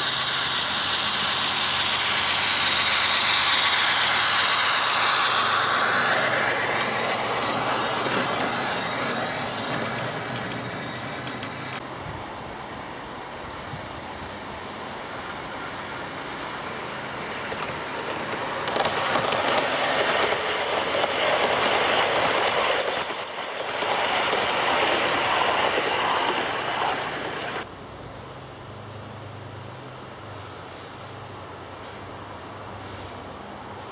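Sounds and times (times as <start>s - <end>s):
model train wheels clattering on rail: 0.0s - 11.8s, 15.7s - 27.6s.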